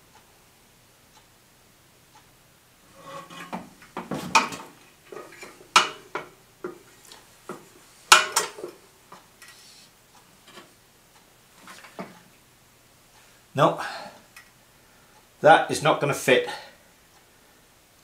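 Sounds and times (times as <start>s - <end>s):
metal clinks and knocks: 3.0s - 8.8s.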